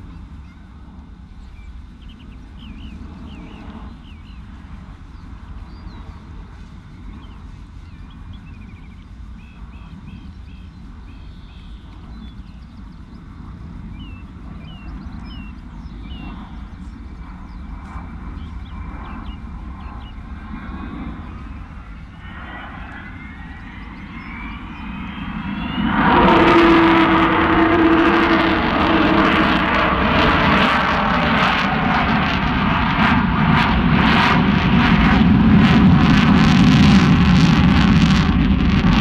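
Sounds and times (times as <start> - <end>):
distant jet engine rumble: 0.0 - 39.0
high jet whine rising in pitch: 14.0 - 39.0.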